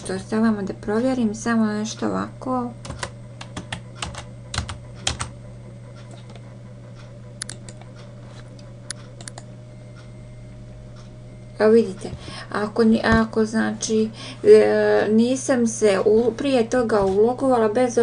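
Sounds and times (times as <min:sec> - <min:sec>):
steady low hum: 0:00.0 - 0:18.0
computer keyboard typing: 0:02.8 - 0:05.4, 0:07.4 - 0:08.0, 0:08.9 - 0:09.4.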